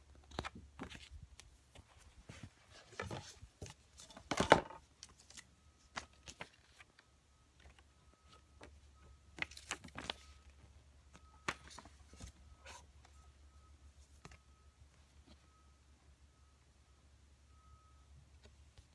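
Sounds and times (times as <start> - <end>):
paper and cards rustling: 0.2 - 7.0, 9.3 - 10.6.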